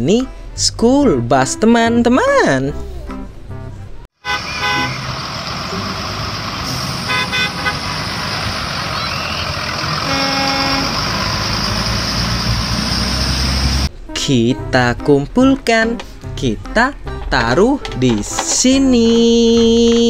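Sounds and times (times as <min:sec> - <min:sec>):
bus engine rumble: 0:02.8 - 0:14.1
bus horn toots: 0:04.2 - 0:12.4.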